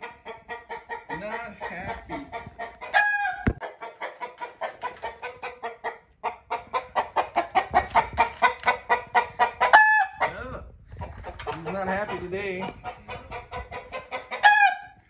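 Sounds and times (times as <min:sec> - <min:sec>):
rooster clucking rapidly: 0:00.0 - 0:15.0
rooster squawk: 0:02.6 - 0:10.4, 0:12.8 - 0:15.0.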